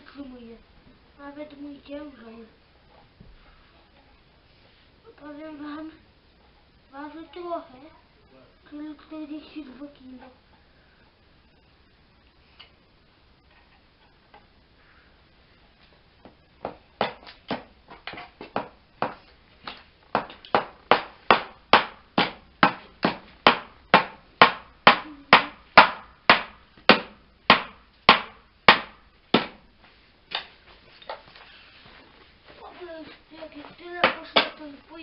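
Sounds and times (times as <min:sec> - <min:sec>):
hammer striking nails into wood: 0:16.6 - 0:29.6, 0:34.0 - 0:34.6.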